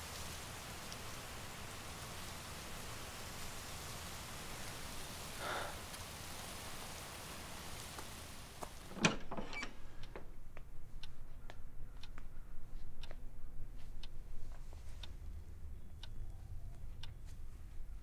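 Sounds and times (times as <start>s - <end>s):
steady outdoor hiss: 0.0s - 18.0s
clock ticking: 9.0s - 16.3s.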